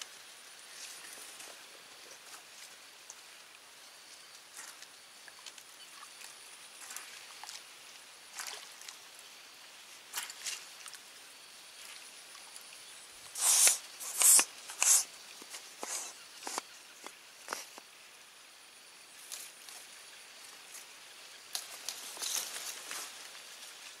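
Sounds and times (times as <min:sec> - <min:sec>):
loud rustling hisses: 0:13.3 - 0:16.7
soft rustles and clicks: 0:13.3 - 0:17.9, 0:21.5 - 0:23.9.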